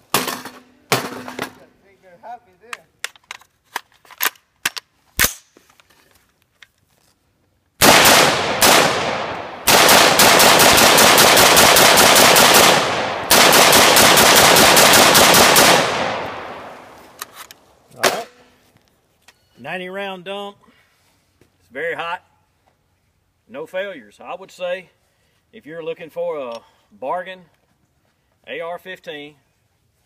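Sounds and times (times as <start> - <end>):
gunshot echo: 7.8 - 17.0
rifle shots: 7.8 - 17.0.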